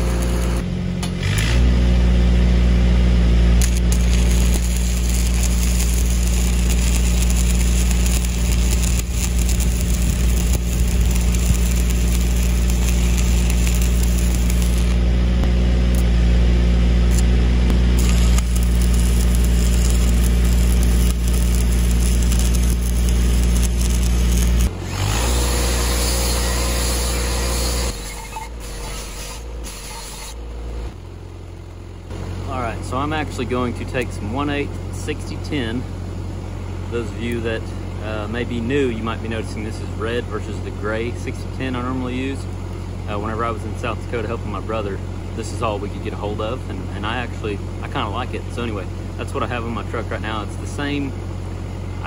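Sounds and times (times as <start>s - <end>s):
angle grinder on steel: 0.0s - 0.6s, 3.6s - 15.0s, 17.1s - 30.4s
welding arc crackling: 0.0s - 0.6s, 3.6s - 16.2s, 17.1s - 30.4s
welding machine engine running: 0.0s - 1.5s, 3.5s - 16.3s, 17.0s - 31.0s.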